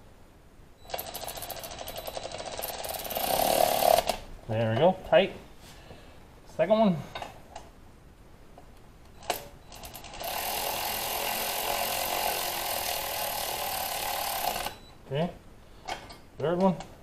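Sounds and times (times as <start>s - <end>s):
power tool running: 2.8s - 4.2s, 9.8s - 14.8s.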